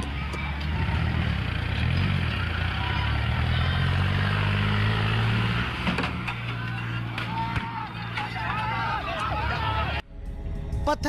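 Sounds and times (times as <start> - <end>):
tractor engine revving: 0.0 - 10.0.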